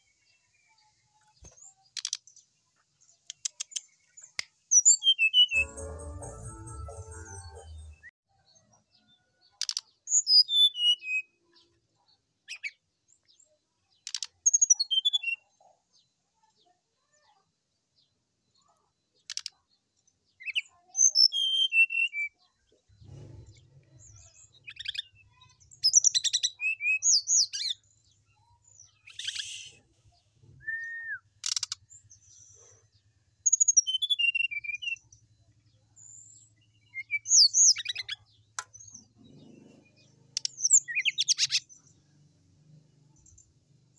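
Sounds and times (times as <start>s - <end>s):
flycatcher whistling song: 29.1s - 29.8s, 30.6s - 31.6s.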